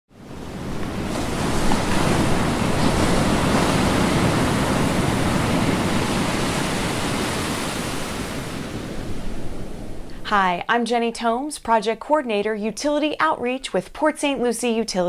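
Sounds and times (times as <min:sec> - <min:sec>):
surf: 0:00.1 - 0:10.3
wind: 0:00.1 - 0:10.8.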